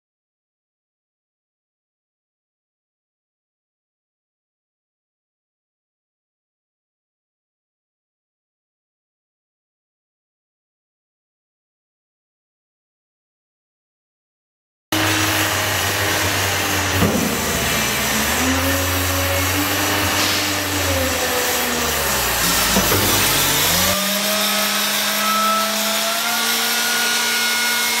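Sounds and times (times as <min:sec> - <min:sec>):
hydraulic pump whine: 0:15.0 - 0:28.0
truck engine rumbling: 0:16.2 - 0:24.0.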